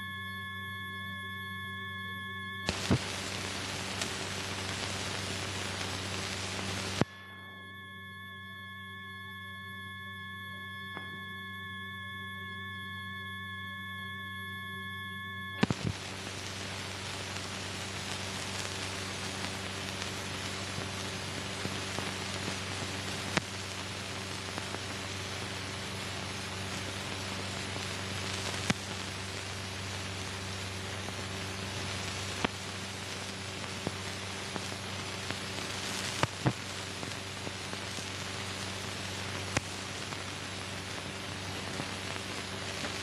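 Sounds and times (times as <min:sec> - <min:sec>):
sharp clicks and pops: 0:02.6 - 0:03.2, 0:15.6 - 0:16.0, 0:23.3 - 0:23.5, 0:28.6 - 0:28.9, 0:36.2 - 0:36.6
film soundtrack hiss and hum: 0:02.6 - 0:07.6, 0:15.6 - 0:43.0.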